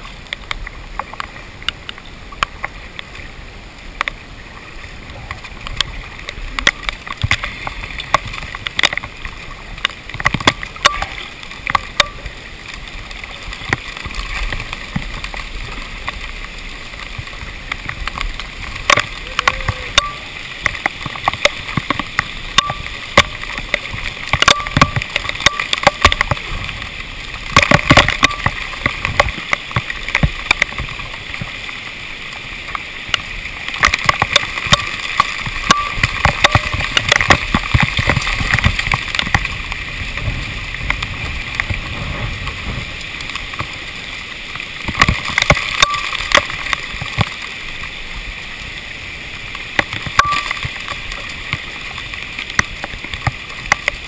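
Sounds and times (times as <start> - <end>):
hailstones ticking on plastic housing: 17.2 - 26.8, 27.4 - 31.5, 33.1 - 42.5, 44.8 - 47.4.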